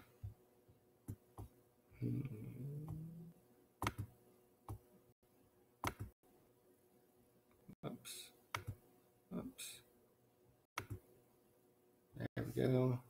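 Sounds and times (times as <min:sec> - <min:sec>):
low hummed voice: 0:02.0 - 0:03.4
computer mouse clicks: 0:08.5 - 0:08.8, 0:10.8 - 0:11.0.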